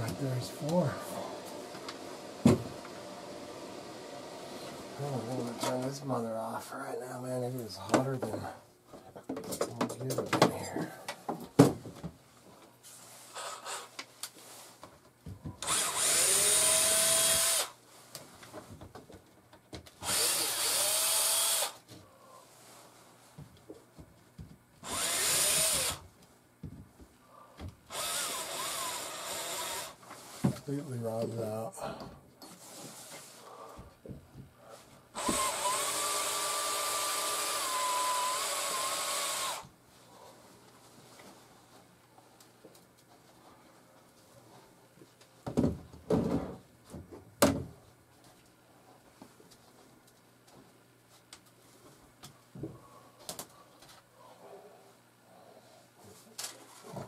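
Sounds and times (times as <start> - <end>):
cordless drill motor whine: 15.6 - 17.8, 20.0 - 21.8, 24.8 - 26.0, 27.9 - 30.0, 35.2 - 39.7.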